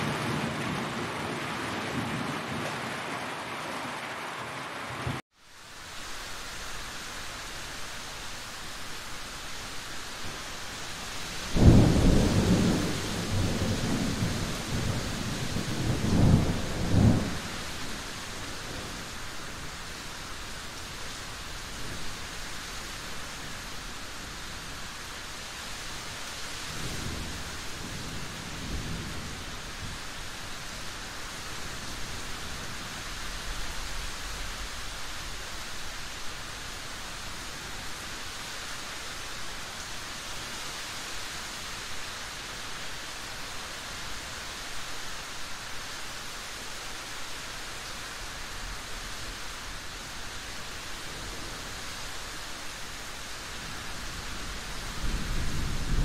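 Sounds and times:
loud thunderclap rumbling: 0:00.0 - 0:02.9, 0:11.5 - 0:17.5, 0:54.9 - 0:56.0
rain hiss: 0:00.0 - 0:56.0.

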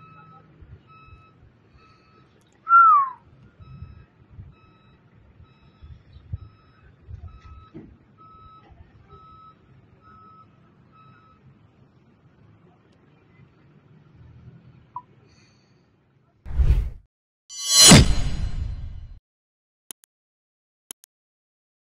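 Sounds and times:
reversing alarm beeping: 0:00.0 - 0:03.0, 0:03.6 - 0:08.6
falling whistle: 0:02.7 - 0:03.2.

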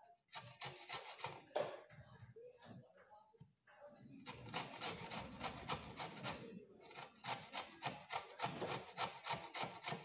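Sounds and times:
carrot grated on metal grater: 0:00.3 - 0:01.5, 0:04.3 - 0:10.0.

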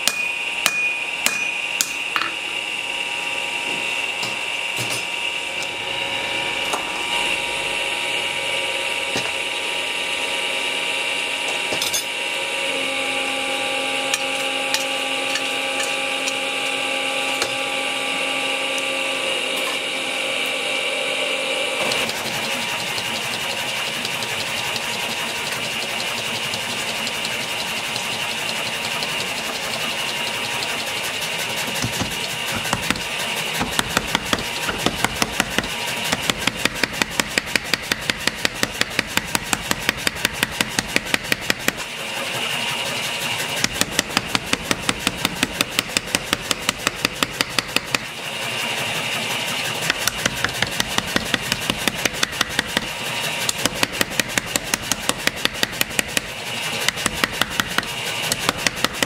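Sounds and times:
power hammer striking steel: 0:00.0 - 0:02.5, 0:14.1 - 0:16.5, 0:21.8 - 0:41.9, 0:43.6 - 0:48.2, 0:49.8 - 0:59.0
machine motors whining: 0:00.0 - 0:59.0
rough machine noise: 0:00.0 - 0:59.0.

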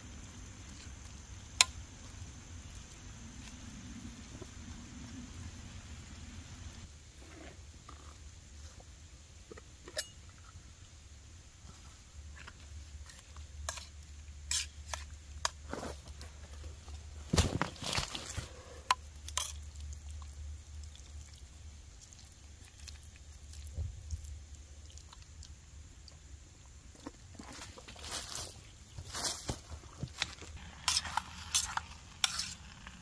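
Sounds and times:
spork scraping in metal pot: 0:14.5 - 0:15.1, 0:30.7 - 0:32.7.

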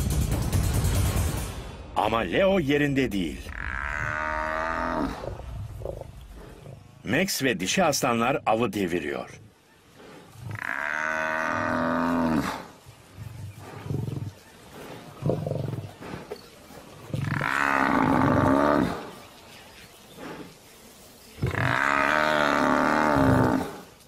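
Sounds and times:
buffalo bellowing: 0:03.4 - 0:07.0, 0:09.5 - 0:20.7, 0:21.3 - 0:24.0.

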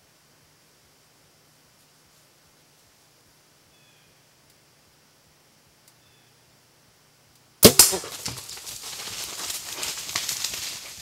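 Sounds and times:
bow shot sharp cracks: 0:07.6 - 0:08.6
bear crashing through brush: 0:07.6 - 0:11.0.

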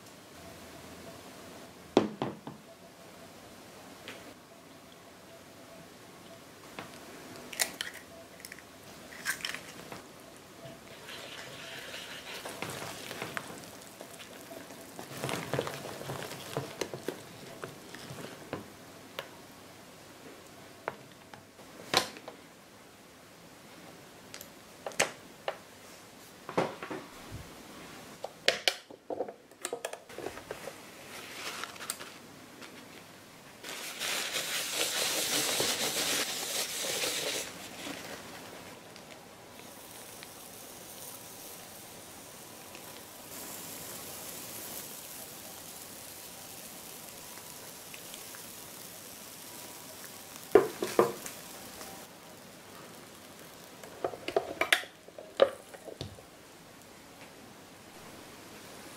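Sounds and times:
whisk stirring batter: 0:10.9 - 0:17.2.

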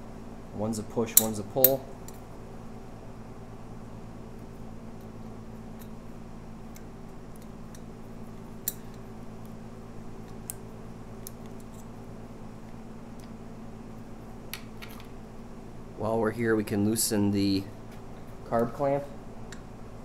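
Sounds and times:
steady low hum: 0:00.0 - 0:20.0
light metal clicks: 0:08.6 - 0:09.6.

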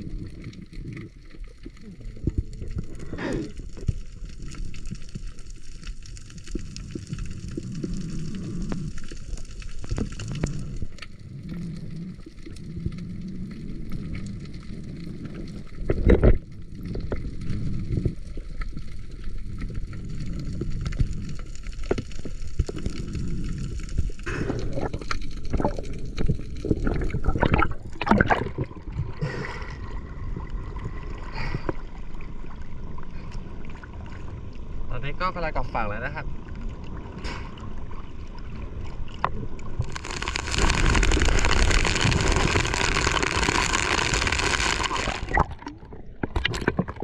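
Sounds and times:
water gurgling and sloshing: 0:00.0 - 0:47.0
splashes: 0:26.8 - 0:29.8, 0:39.8 - 0:47.0.

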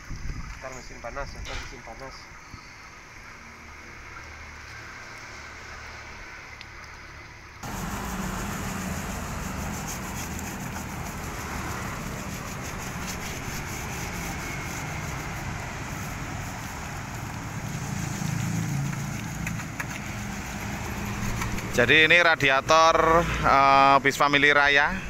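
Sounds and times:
road traffic rumble: 0:02.9 - 0:25.0
scrubbing radiator fins: 0:07.6 - 0:22.6.

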